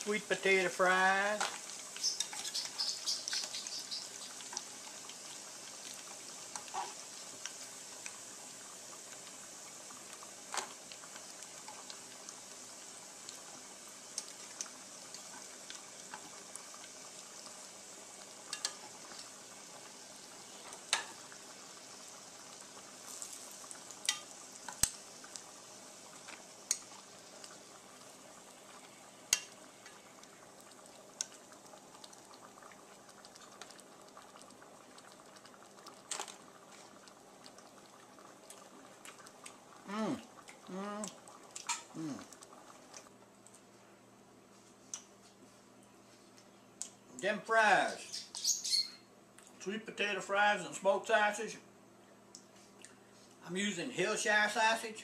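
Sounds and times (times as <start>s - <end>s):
fries sizzling in hot oil: 0.0s - 43.8s, 47.2s - 51.6s, 52.4s - 55.0s
tongs clicking on metal pan: 18.5s - 18.8s.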